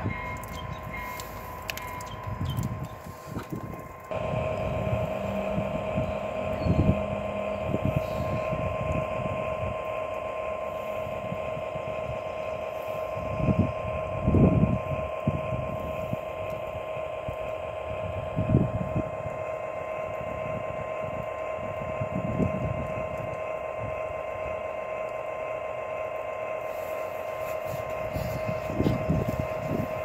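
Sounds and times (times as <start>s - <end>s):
low rumbles: 0.0s - 19.2s
model train electric whine: 0.0s - 30.0s.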